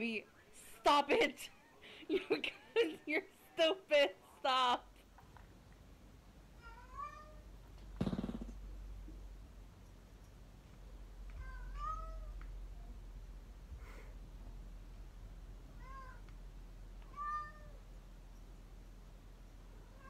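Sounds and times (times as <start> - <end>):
cat meowing: 6.6 - 7.4, 11.4 - 12.4, 17.1 - 17.8.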